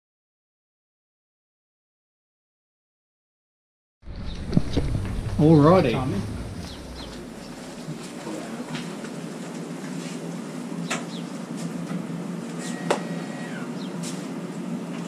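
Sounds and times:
steady low hum: 0:04.0 - 0:15.0.

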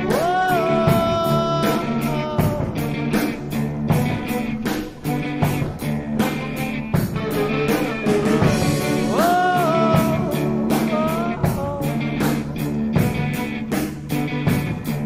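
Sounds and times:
rock music: 0:00.0 - 0:15.0.

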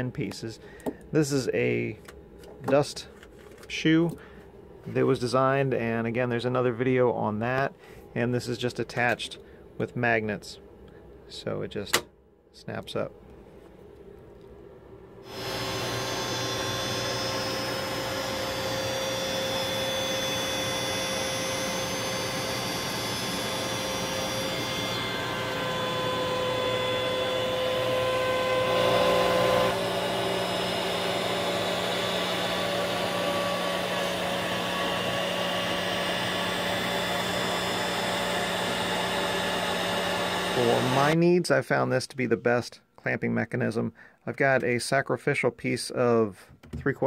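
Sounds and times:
shop vacuum running: 0:15.2 - 0:41.2
router cutting plywood: 0:15.3 - 0:41.2.

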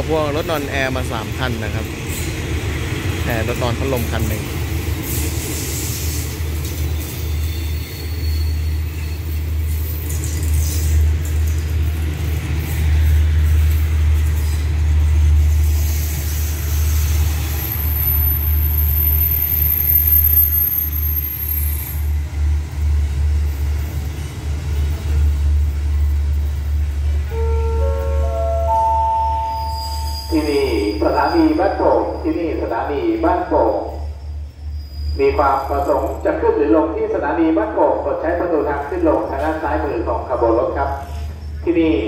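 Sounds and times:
train rumbling past: 0:00.0 - 0:42.0
station chime stepped tones: 0:27.8 - 0:30.3.

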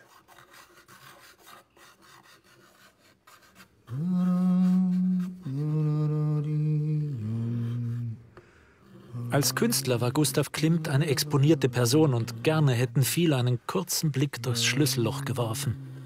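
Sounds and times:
pencil scratching on paper: 0:00.0 - 0:05.4, 0:09.4 - 0:13.5
man humming long notes: 0:03.9 - 0:16.0.

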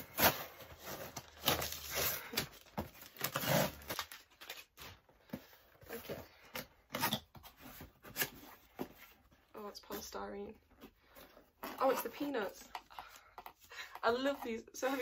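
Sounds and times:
cardboard parcel being torn open: 0:00.0 - 0:05.0
tape and packaging rustling: 0:00.0 - 0:15.0.

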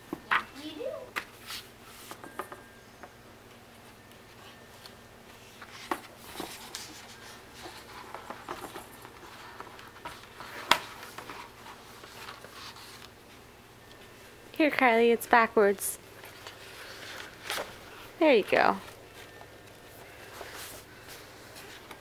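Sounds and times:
book pages rustling: 0:04.3 - 0:14.0, 0:16.2 - 0:18.2, 0:18.8 - 0:22.0.

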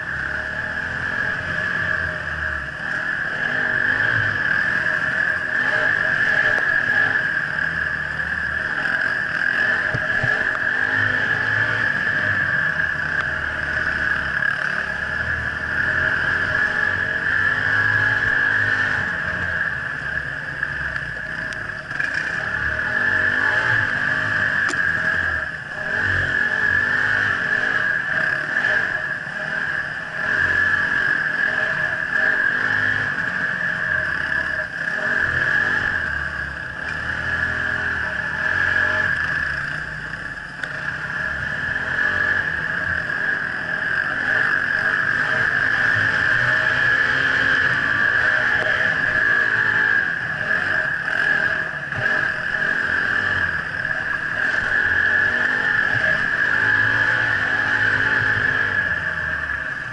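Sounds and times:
motorcycle engine revving: 0:00.0 - 0:59.9
steady high whine: 0:00.0 - 0:59.9.

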